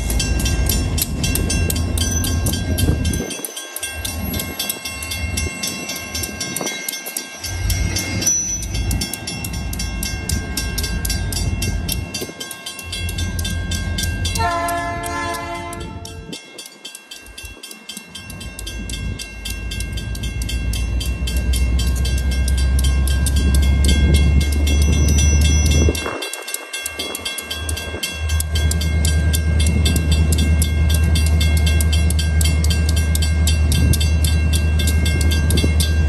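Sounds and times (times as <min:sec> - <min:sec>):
railroad crossing bell ringing: 0:00.0 - 0:36.0
train rumbling past: 0:00.0 - 0:36.0
train horn blast: 0:14.4 - 0:16.3.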